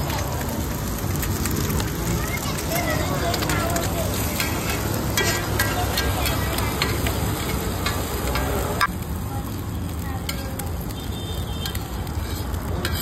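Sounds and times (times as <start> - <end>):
curry sizzling in a pan: 0.0 - 13.0
metal spatula scraping a pan: 3.3 - 8.9, 11.6 - 13.0.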